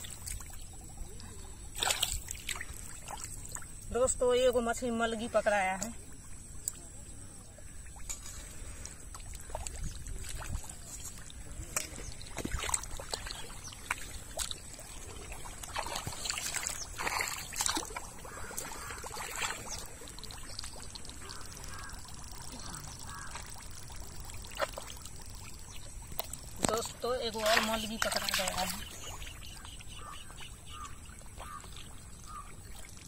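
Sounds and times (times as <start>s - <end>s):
water dripping and trickling: 0.0s - 33.0s
hands splashing in muddy water: 1.7s - 3.5s, 9.3s - 20.4s.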